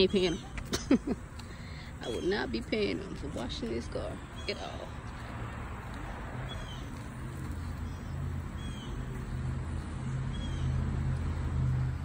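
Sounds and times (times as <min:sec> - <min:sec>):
bird chirping: 0:06.4 - 0:09.2, 0:10.0 - 0:10.8.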